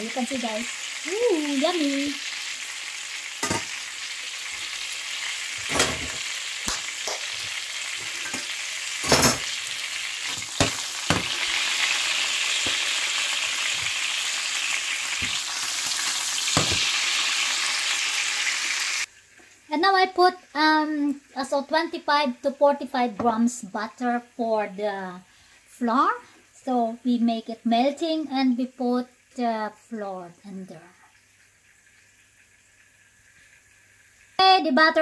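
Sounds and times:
sausages sizzling in pan: 0.0s - 35.0s
tongs and knife clinking on pan: 3.4s - 3.8s, 5.6s - 9.6s.

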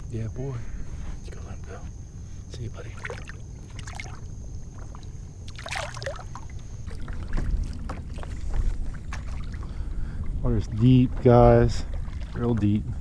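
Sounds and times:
water splashing at kayak side: 2.8s - 13.0s
wind rumble on microphone: 6.3s - 13.0s.

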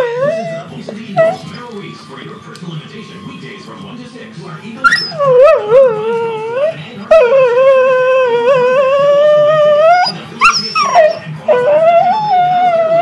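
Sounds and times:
dog howling: 0.0s - 1.6s, 4.8s - 13.0s.

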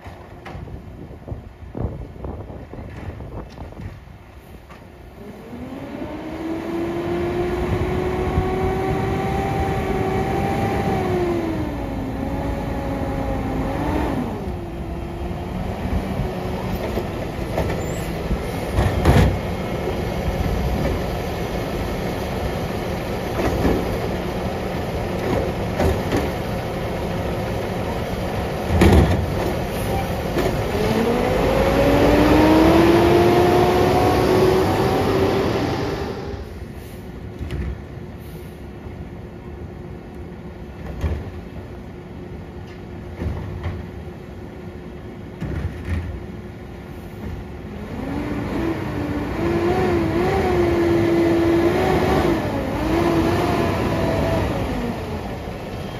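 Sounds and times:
hydraulic whine rising: 5.2s - 16.6s, 29.8s - 36.6s.

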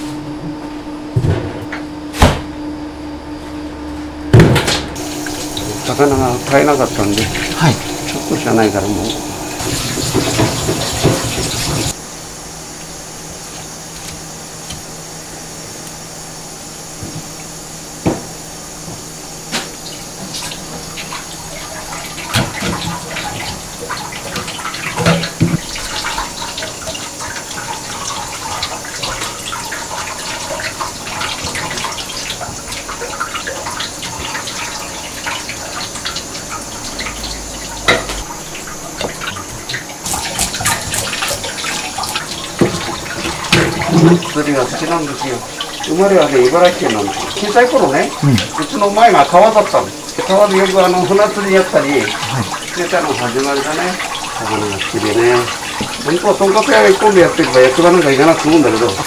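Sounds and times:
tap running into sink: 4.4s - 12.0s, 22.2s - 59.0s.

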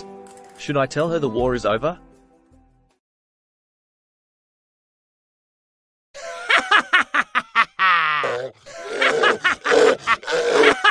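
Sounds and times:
person laughing hard: 6.2s - 10.9s.

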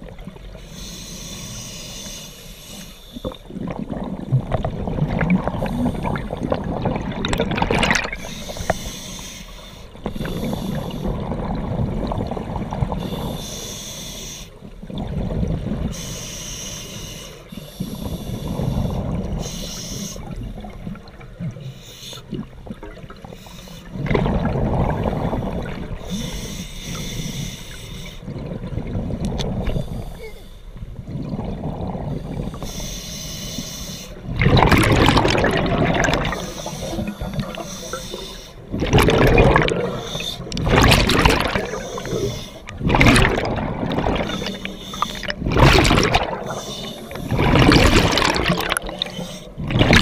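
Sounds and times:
hissing regulator inhalations: 0.6s - 3.5s, 8.2s - 11.1s, 13.0s - 14.6s, 15.9s - 20.4s, 25.3s - 28.3s, 32.4s - 34.3s, 36.2s - 38.7s, 39.8s - 40.6s, 41.5s - 42.8s, 44.2s - 45.4s, 46.3s - 47.6s, 48.9s - 49.6s
bubbling exhalations: 3.5s - 8.2s, 34.3s - 50.0s.

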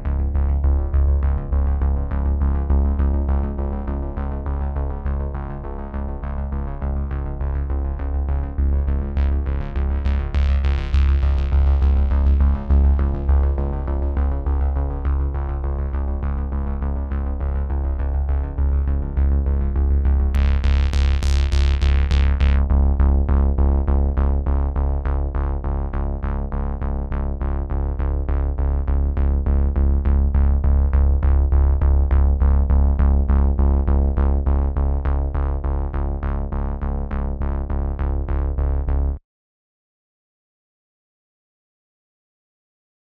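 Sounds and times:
synthesizer music with pulsing beat: 6.1s - 24.8s.

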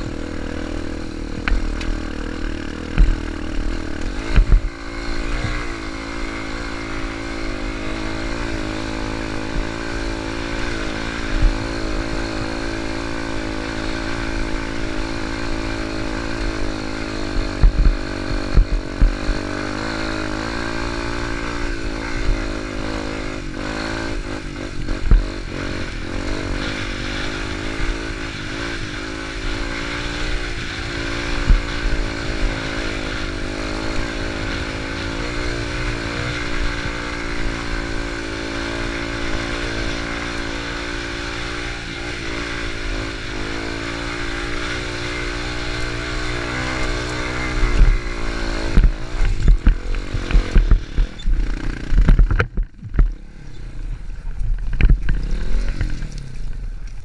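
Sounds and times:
sharp thumps: 0.0s - 5.8s, 33.7s - 53.2s
motorcycle engine revving: 0.0s - 57.0s.

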